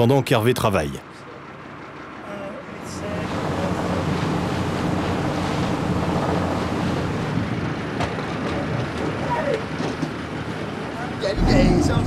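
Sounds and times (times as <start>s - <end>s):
boat engine droning: 1.4s - 7.2s, 11.3s - 12.0s.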